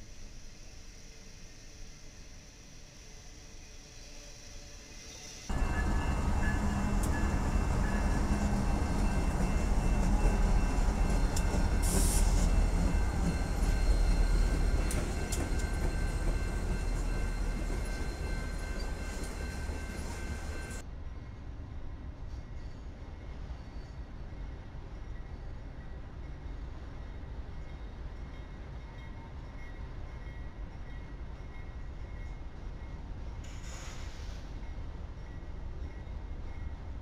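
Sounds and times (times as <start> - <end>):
diesel locomotive engine rumble: 5.5 - 20.9
brief hiss: 33.4 - 34.7.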